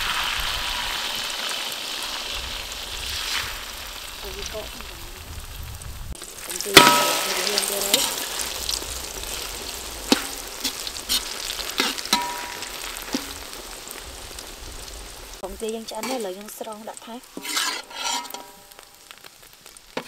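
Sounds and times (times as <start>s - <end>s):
egg sizzling in oil: 0.0s - 20.0s
metal spoon scraping wok: 6.3s - 13.5s, 16.0s - 19.0s.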